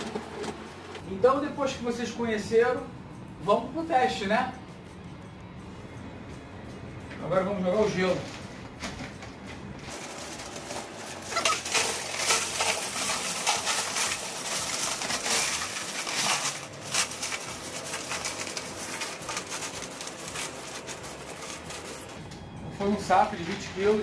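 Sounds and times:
ice rattling over metal coils: 9.8s - 22.2s
plastic bag rustling: 9.8s - 22.2s.

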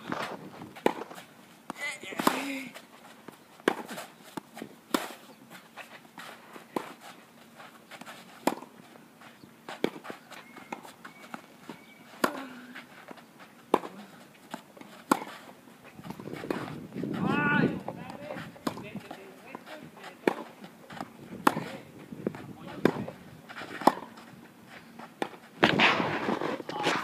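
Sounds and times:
footsteps on clay: 0.0s - 27.0s
tennis racket hitting ball: 0.8s - 2.6s, 3.6s - 5.3s, 7.9s - 8.7s, 13.7s - 15.4s, 16.0s - 21.8s, 22.8s - 24.3s.

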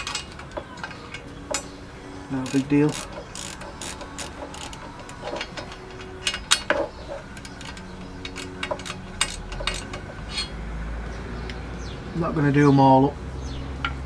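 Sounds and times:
ratchet spanner clicking: 2.4s - 10.6s.

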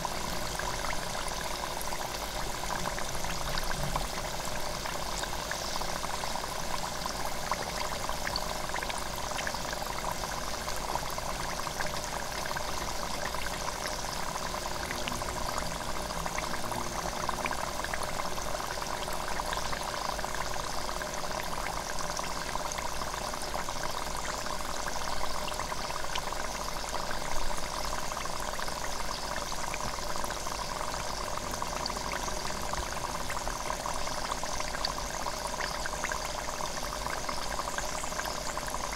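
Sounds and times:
oil sizzling in a deep fryer: 0.0s - 38.9s.

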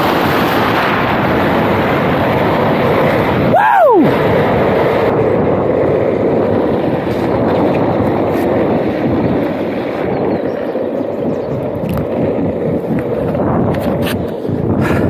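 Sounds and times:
skateboard wheels rolling on asphalt: 0.0s - 15.0s
wind rushing on microphone: 0.0s - 15.0s.

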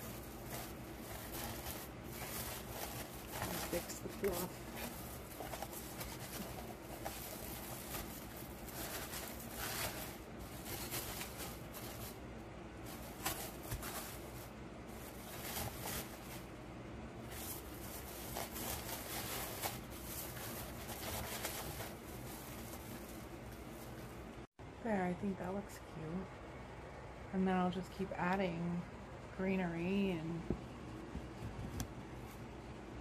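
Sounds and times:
artificial garland rustling: 0.0s - 24.6s
faint low hum: 0.0s - 33.0s.

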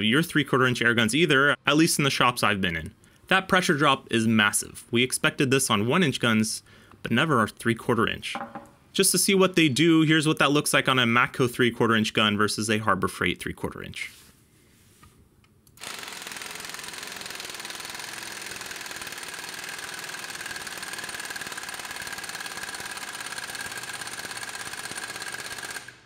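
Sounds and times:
pneumatic impact wrench hammering: 15.8s - 26.0s.

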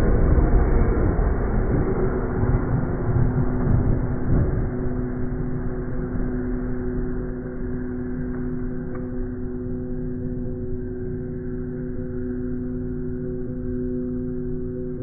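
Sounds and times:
low rumble: 0.0s - 11.5s.

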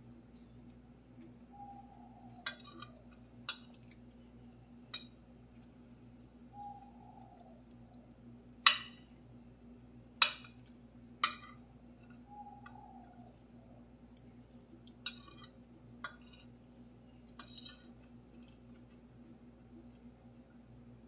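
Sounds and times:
cutlery clinking on ceramic plate: 11.2s - 11.7s, 17.4s - 17.9s.

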